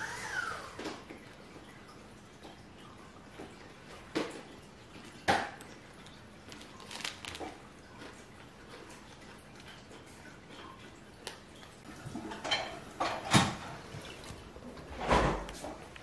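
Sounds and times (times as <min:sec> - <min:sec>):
snack packet crinkling: 0:06.5 - 0:07.7.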